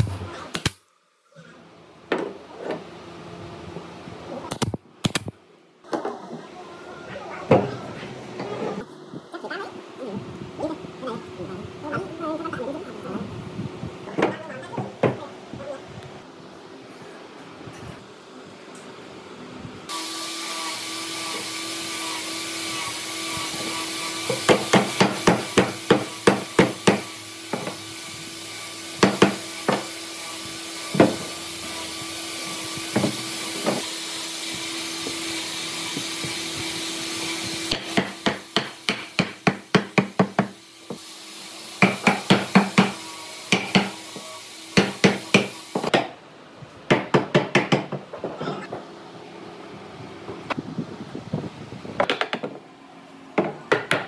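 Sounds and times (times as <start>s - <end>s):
hammer striking wood: 24.3s - 27.8s, 29.0s - 29.9s, 31.0s - 31.3s, 32.9s - 33.8s, 37.7s - 40.6s, 41.8s - 44.0s, 44.8s - 46.1s, 46.9s - 48.0s, 53.4s - 54.0s.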